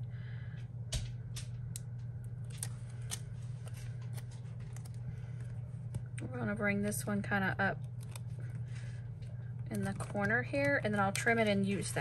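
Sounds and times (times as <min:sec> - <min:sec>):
steady low hum: 0:00.0 - 0:12.0
plastic sticker peeling and crinkling: 0:02.2 - 0:07.2, 0:07.8 - 0:08.9, 0:09.7 - 0:12.0.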